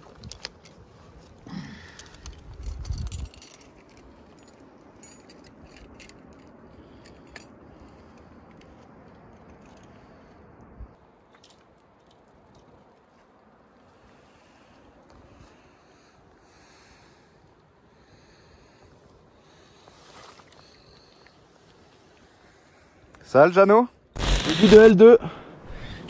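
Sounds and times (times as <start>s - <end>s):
metal carabiners clinking: 1.9s - 10.0s, 24.2s - 24.9s.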